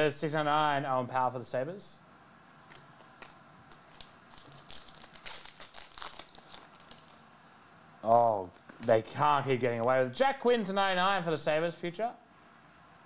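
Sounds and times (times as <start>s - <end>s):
cards rustling and flicking: 3.0s - 7.2s.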